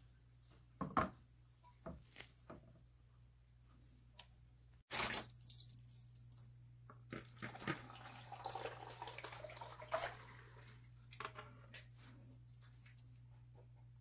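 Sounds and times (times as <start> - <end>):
mash splashing and dripping: 4.9 - 6.5.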